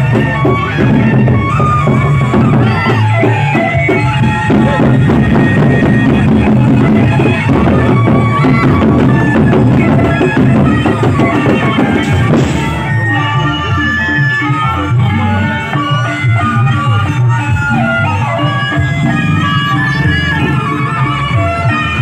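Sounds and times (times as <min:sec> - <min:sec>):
large barrel drums beaten: 0:00.0 - 0:13.5
sustained high-pitched tones: 0:16.8 - 0:22.0.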